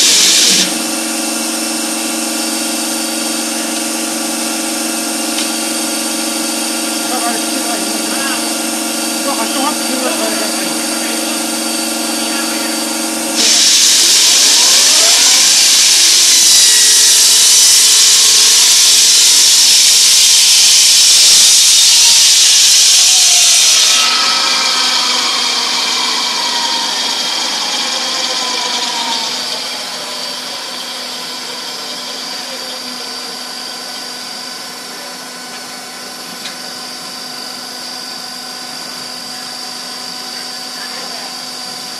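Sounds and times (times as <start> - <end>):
loud high hiss: 0.0 - 1.0, 4.4 - 32.7
hydraulic power pack running: 0.0 - 40.1
saw blade whine: 0.0 - 41.9.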